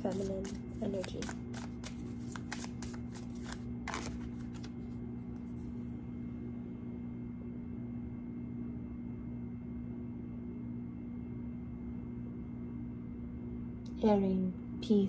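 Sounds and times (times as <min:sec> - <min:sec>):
cards being shuffled: 0:00.0 - 0:05.6
steady low hum: 0:00.0 - 0:15.0.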